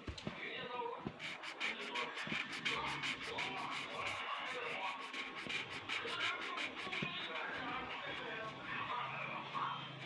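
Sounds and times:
faint background music: 0.0s - 10.0s
pen scribbling on paper: 1.1s - 8.5s.

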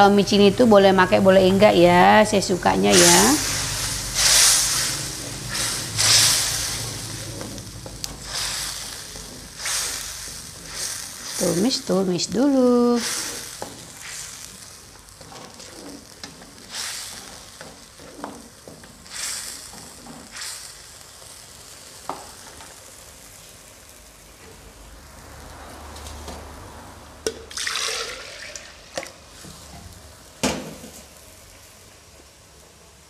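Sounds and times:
paste sizzling in oil: 2.0s - 24.3s
spatula scraping pan: 2.9s - 12.0s, 12.8s - 20.4s.

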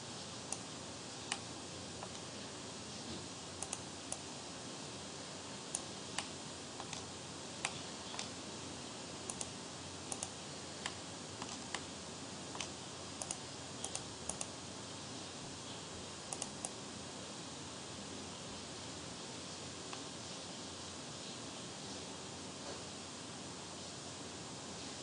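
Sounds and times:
background hiss: 0.0s - 25.0s
computer clicks: 0.5s - 0.7s, 1.3s - 2.3s, 3.6s - 4.3s, 5.7s - 8.4s, 9.3s - 11.9s, 12.5s - 14.6s, 16.3s - 16.8s.

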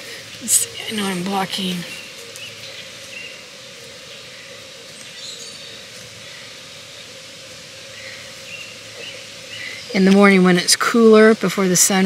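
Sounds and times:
faint bird chirps: 0.0s - 7.2s, 7.8s - 10.2s
steady hum: 0.0s - 12.0s.

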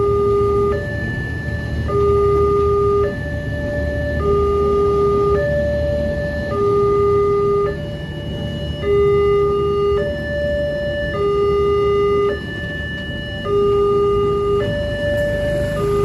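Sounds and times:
two-tone level crossing siren: 0.0s - 16.0s
train coaches rumbling past: 15.1s - 16.0s.

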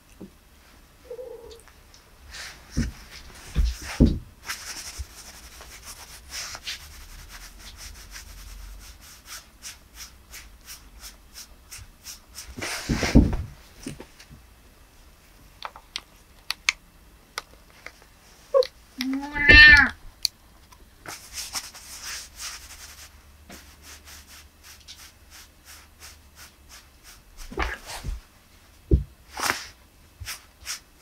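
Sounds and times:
cloth rubbing and rustling: 2.3s - 14.3s, 21.1s - 31.0s
thump: 12.9s - 13.5s, 28.9s - 29.1s.

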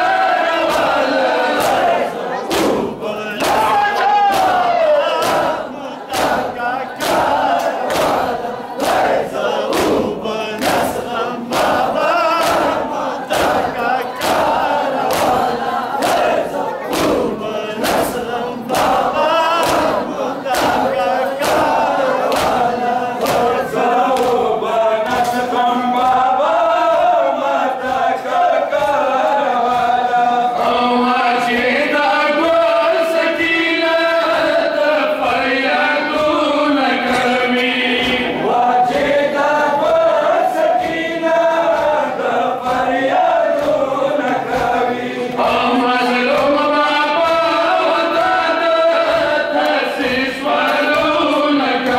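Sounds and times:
crowd of men chanting: 0.0s - 51.9s
hands beating on chests: 1.6s - 24.5s.

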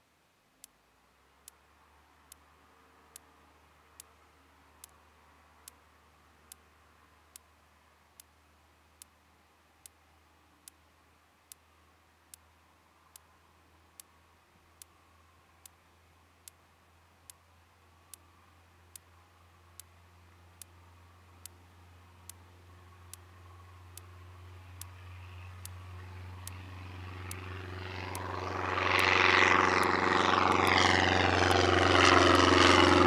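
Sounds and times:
light aircraft engine drone: 0.0s - 33.0s
sharp repeating tick: 26.4s - 26.6s, 28.0s - 29.1s.

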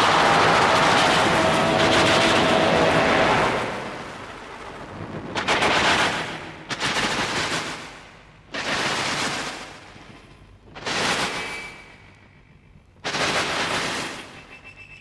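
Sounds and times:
rushing noise wash: 0.0s - 8.3s
harsh noise bursts: 0.0s - 10.0s.

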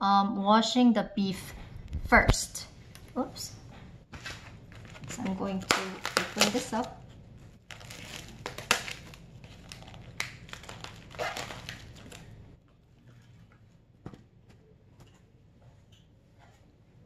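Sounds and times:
plastic film crinkling and tearing: 4.2s - 12.4s.

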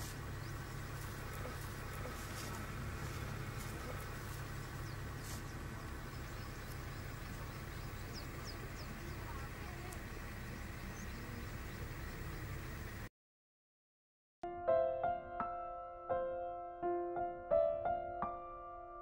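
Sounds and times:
low rumble: 0.0s - 13.1s.

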